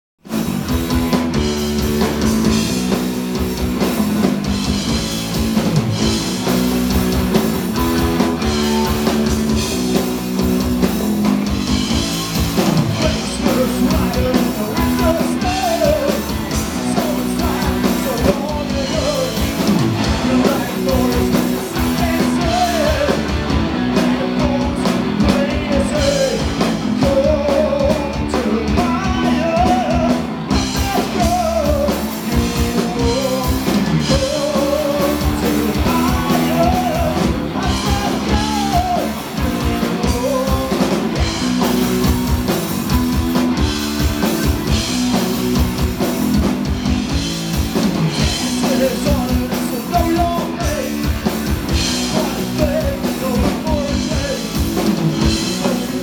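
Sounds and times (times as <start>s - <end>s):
bass guitar: 0.2s - 56.0s
drum kit: 0.2s - 56.0s
electric guitars: 0.2s - 56.0s
person singing: 8.2s - 9.6s, 12.8s - 41.3s, 48.4s - 54.6s.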